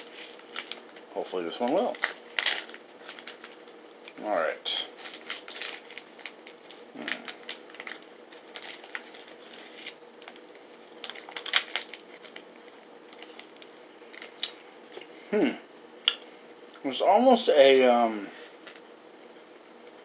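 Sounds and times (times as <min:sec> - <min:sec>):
plastic wrapper crinkling: 0:00.0 - 0:04.2, 0:04.9 - 0:15.1.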